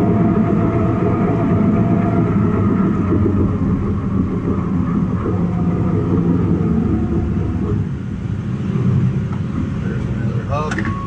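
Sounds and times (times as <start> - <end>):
bulldozer engine under load: 0.0 - 11.0.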